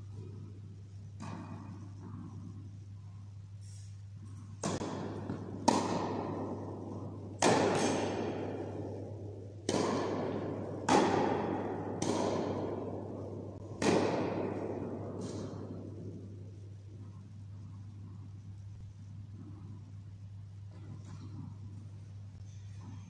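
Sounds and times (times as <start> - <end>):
tennis balls struck by rackets: 0.1 - 2.7, 4.4 - 18.0, 20.7 - 21.9
tennis balls bouncing on court: 1.1 - 2.6, 4.5 - 17.1.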